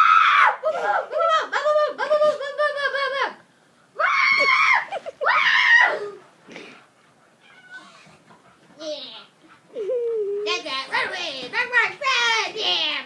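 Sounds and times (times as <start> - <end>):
child squealing: 4.0 - 6.2
child laughing: 4.3 - 6.2, 9.7 - 10.6.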